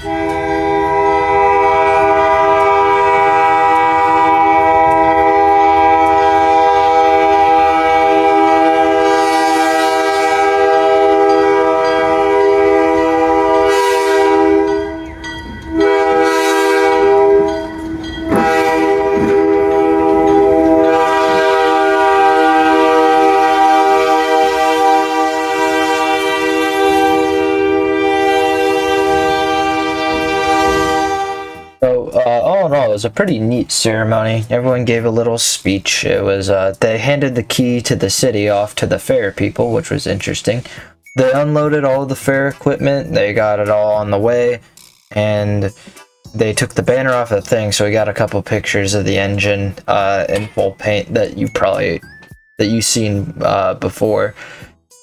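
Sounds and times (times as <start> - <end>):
diesel locomotive horn blasts: 0.0 - 31.9.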